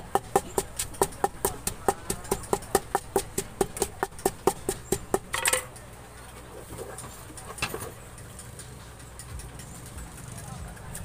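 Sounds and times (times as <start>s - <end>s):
wooden pestle pounding in mortar: 0.0s - 5.7s
pestle scrape: 0.0s - 5.8s.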